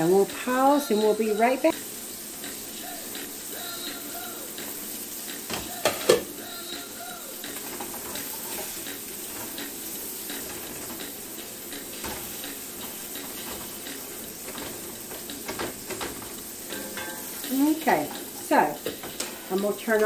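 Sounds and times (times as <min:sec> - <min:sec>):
meat sizzling in a skillet: 0:00.0 - 0:20.0
spatula scraping and tapping pan: 0:07.4 - 0:20.0.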